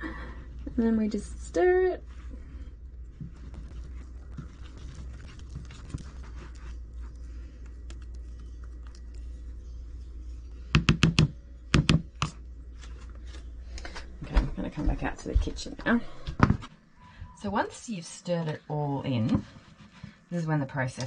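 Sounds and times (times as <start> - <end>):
steady low hum: 0.0 - 21.0
spoon stirring thick dough: 0.7 - 13.5.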